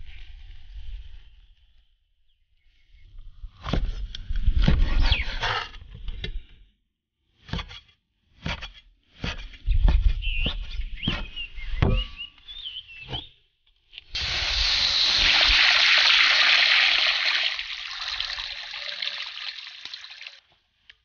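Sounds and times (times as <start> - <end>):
water pouring into wok: 14.2 - 20.4.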